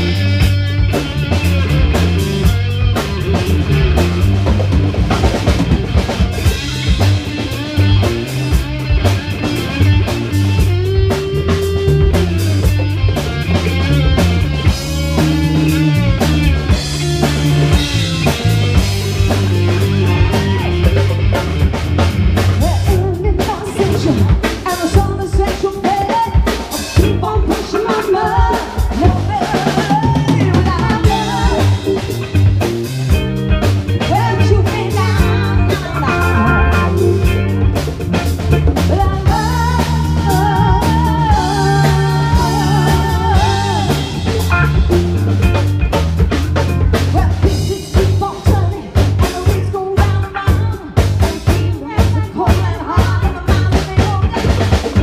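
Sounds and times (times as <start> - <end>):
drum kit beat: 0.0 - 55.0
electric guitar: 0.0 - 55.0
person singing: 17.2 - 21.6, 22.6 - 32.3, 33.9 - 37.4, 38.8 - 44.9, 47.0 - 55.0.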